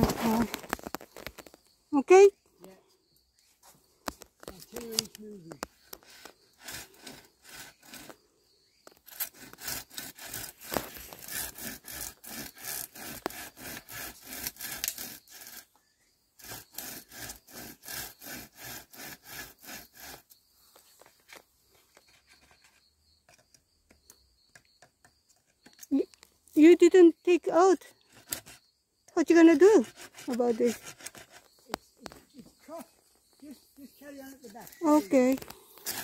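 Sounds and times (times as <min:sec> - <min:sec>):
hand saw cutting bamboo: 0:06.0 - 0:08.2, 0:09.0 - 0:15.7, 0:16.4 - 0:20.3, 0:29.5 - 0:31.5, 0:34.6 - 0:36.0.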